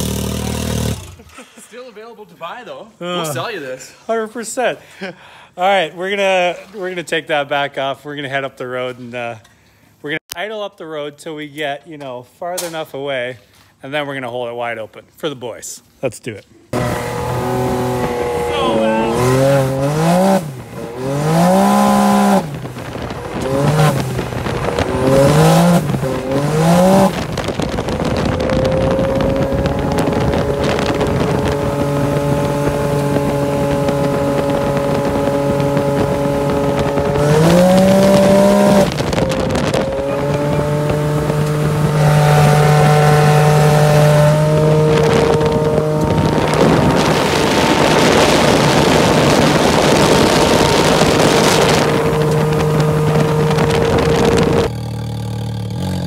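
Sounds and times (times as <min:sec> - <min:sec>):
loud engine revving: 0:00.0 - 0:01.3, 0:16.7 - 0:56.0
wind noise: 0:16.8 - 0:54.7.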